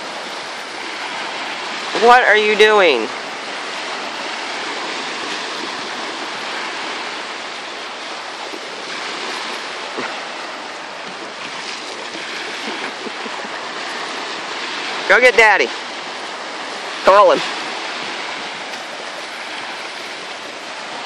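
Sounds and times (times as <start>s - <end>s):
small waves washing onto sand: 0.0s - 21.0s.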